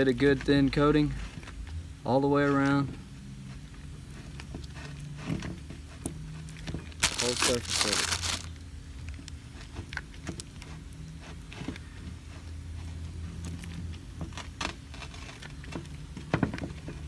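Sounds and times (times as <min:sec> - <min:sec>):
gloved hands smearing grease: 0:07.0 - 0:08.5.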